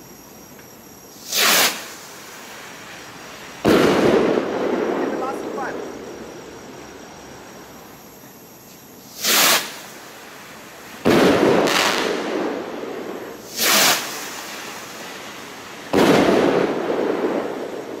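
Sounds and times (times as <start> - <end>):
firework star burst bang: 1.1 - 2.5, 3.6 - 5.9, 9.1 - 10.0, 10.9 - 18.0
rocket launch whoosh: 1.2 - 1.9, 9.2 - 9.8, 13.4 - 14.7.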